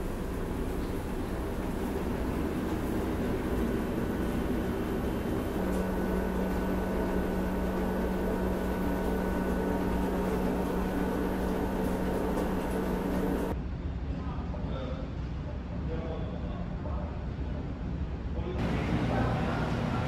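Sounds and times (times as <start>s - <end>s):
ferry engine rumble: 0.0s - 13.6s
steady droning hum: 0.0s - 13.6s.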